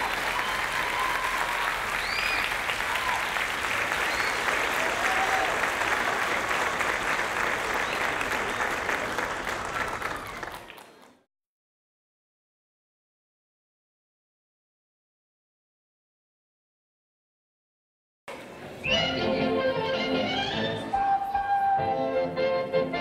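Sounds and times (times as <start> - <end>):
shouted cheers: 0.0 - 6.1, 9.7 - 10.8
audience applauding: 0.0 - 11.3.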